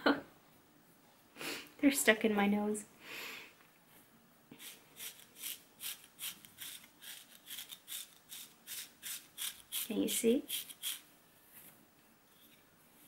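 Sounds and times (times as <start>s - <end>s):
comb scraping wool sock: 4.6s - 11.0s.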